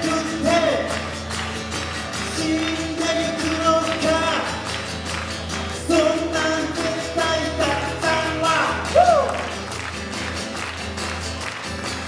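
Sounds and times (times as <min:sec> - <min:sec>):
man singing: 0:00.0 - 0:01.1, 0:02.2 - 0:04.8, 0:05.7 - 0:09.4
acoustic guitar strumming: 0:00.0 - 0:12.0.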